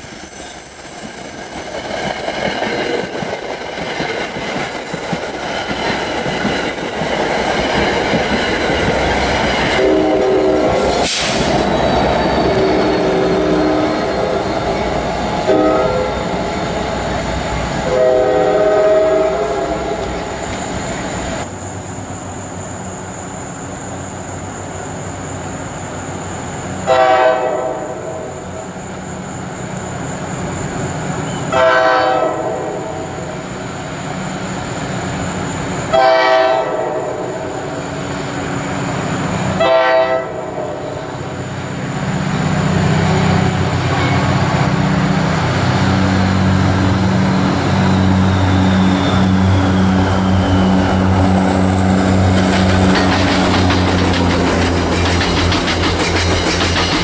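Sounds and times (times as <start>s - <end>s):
train rumbling: 0.0s - 57.0s
locomotive horn blasts: 9.8s - 10.8s, 15.4s - 16.2s, 17.8s - 20.1s, 26.9s - 28.1s, 31.5s - 33.0s, 35.9s - 37.3s, 39.6s - 40.8s.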